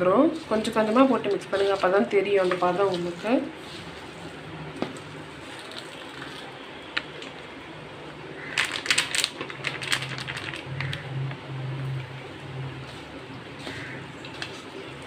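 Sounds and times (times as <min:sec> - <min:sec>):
sharp clicks and rattles: 0:08.6 - 0:11.0.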